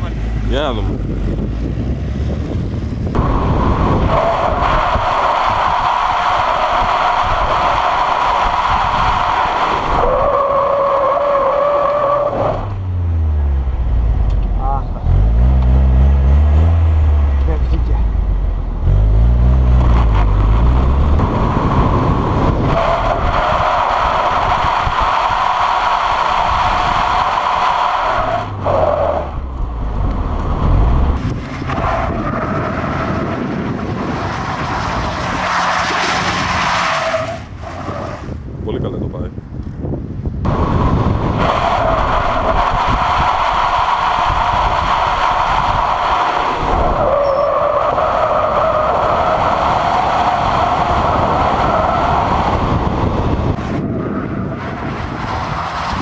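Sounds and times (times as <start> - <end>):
car engine running low: 0.0 - 37.7.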